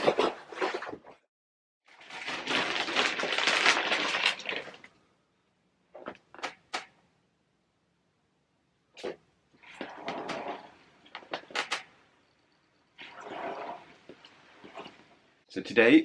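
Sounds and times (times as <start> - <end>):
plastic sheeting crinkling: 1.9 - 5.0.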